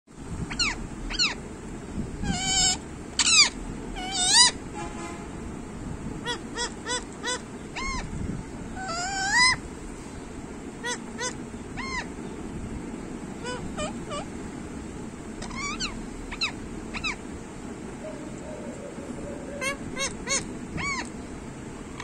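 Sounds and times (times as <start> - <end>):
parakeet screeching: 0.5 - 1.4, 2.2 - 4.6, 6.2 - 8.1, 8.8 - 9.6, 10.8 - 12.1, 13.4 - 14.3, 15.4 - 17.2, 18.1 - 21.2
parakeet short chirps: 10.8 - 12.1, 15.4 - 17.2.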